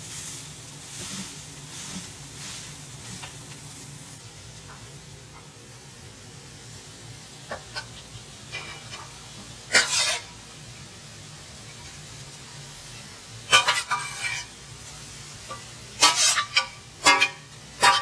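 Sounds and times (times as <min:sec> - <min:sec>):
vegetables sizzling: 0:00.0 - 0:18.0
metal spoon scraping a pot: 0:09.7 - 0:10.3, 0:13.5 - 0:14.5, 0:15.5 - 0:18.0.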